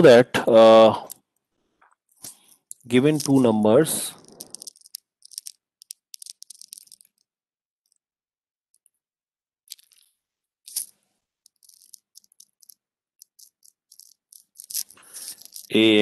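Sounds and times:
stylus scraping: 1.8 - 7.3, 10.7 - 15.9.

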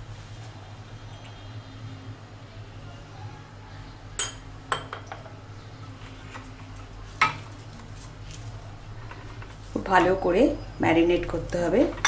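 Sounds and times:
utensils clinking against bowl: 4.2 - 5.3.

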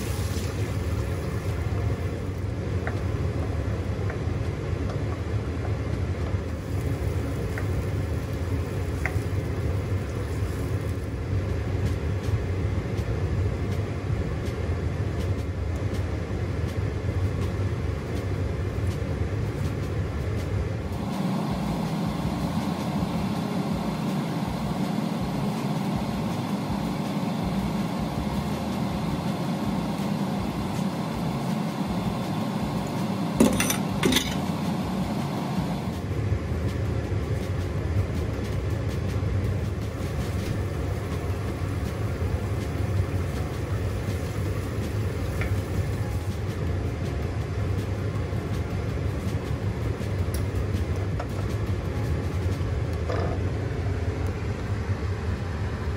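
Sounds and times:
hob humming: 13.7 - 55.9.

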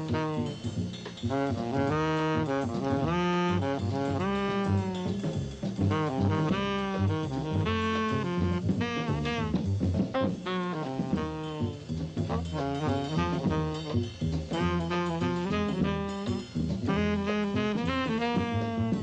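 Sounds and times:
bass line: 0.0 - 19.0
jazz horns playing melody: 0.0 - 19.0.

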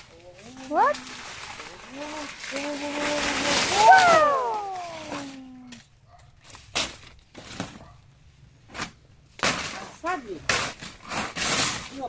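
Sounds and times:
dry leaves crackling and rustling: 0.0 - 7.8, 9.4 - 12.0
person's drawn-out exclamation: 1.9 - 5.8.

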